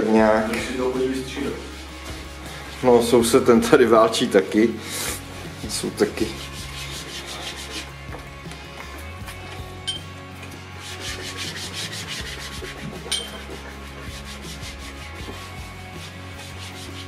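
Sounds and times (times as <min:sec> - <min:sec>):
hand tool scraping wall plaster: 0:04.9 - 0:08.0, 0:10.8 - 0:17.0.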